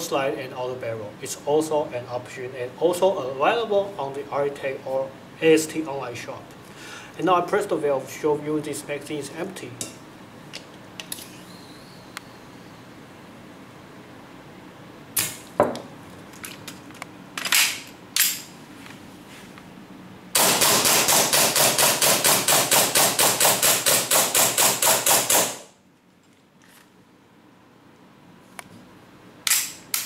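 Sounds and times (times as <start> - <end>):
airsoft pistol firing: 20.4 - 25.7.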